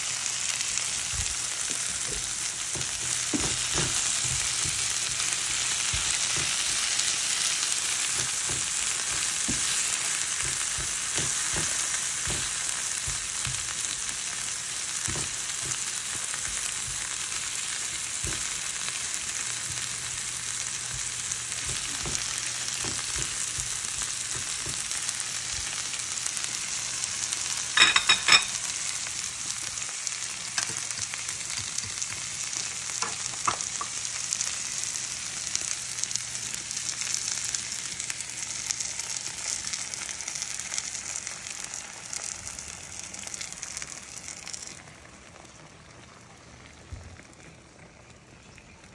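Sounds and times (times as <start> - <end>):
vegetables sizzling in frying pan: 0.0 - 48.9
spatula knocking while stirring: 1.9 - 6.8, 8.1 - 13.9, 15.0 - 17.3, 19.6 - 25.0, 30.5 - 33.9.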